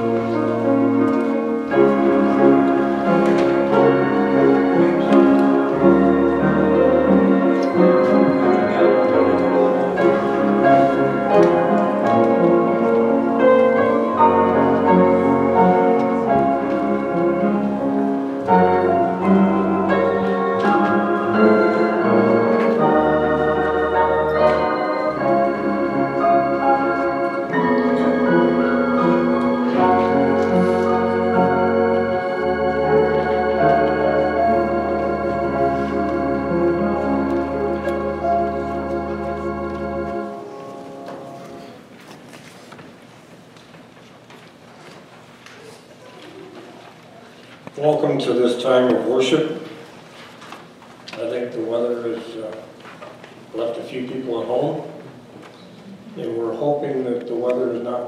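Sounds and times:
organ playing slow chords: 0:00.0 - 0:42.1.

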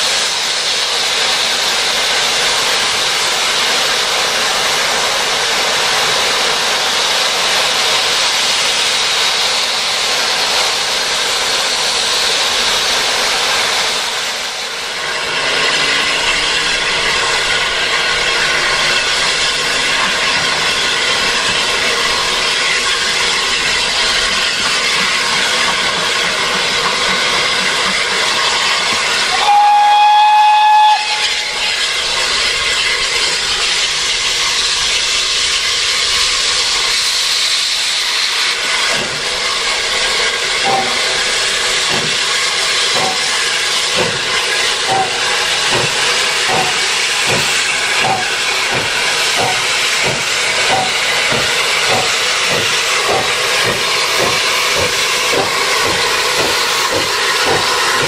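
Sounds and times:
steam hissing: 0:00.0 - 0:58.0
steam locomotive exhaust beats: 0:00.0 - 0:58.0
steam whistle blast: 0:29.2 - 0:31.8.

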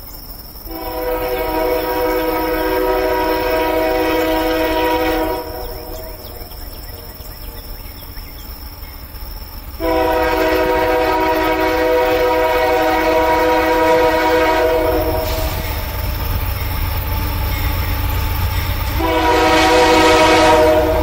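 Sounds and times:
train rumble: 0:00.0 - 0:21.0
locomotive air horn: 0:00.7 - 0:06.4, 0:09.8 - 0:16.0, 0:18.8 - 0:21.0.

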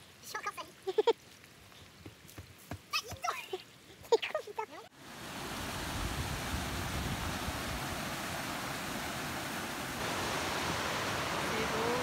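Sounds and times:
stream splashing over rocks: 0:05.0 - 0:12.0.

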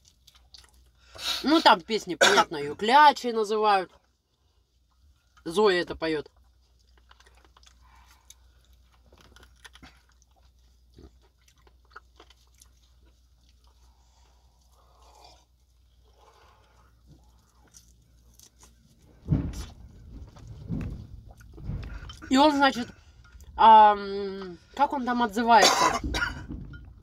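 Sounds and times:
person chewing food: 0:00.0 - 0:01.2, 0:06.3 - 0:22.2
loud thumps: 0:19.2 - 0:22.4, 0:26.0 - 0:27.0.

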